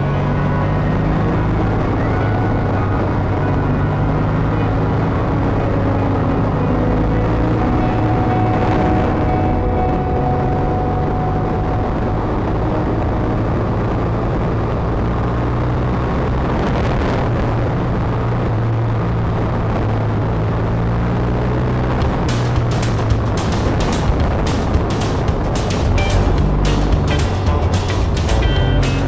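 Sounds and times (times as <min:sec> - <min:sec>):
wind and road noise: 0:00.0 - 0:29.0
motorcycle engine running: 0:21.5 - 0:29.0.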